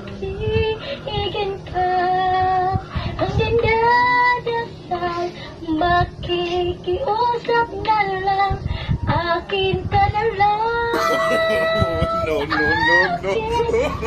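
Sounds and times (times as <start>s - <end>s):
high voice singing a ballad: 10.9s - 14.0s.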